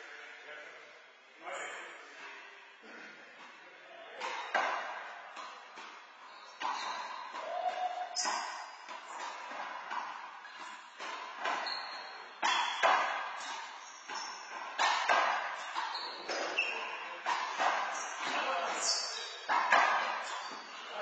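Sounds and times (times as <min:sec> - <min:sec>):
sneaker squeaks: 0:04.1 - 0:21.0
handball smacking walls and floor: 0:04.2 - 0:21.0.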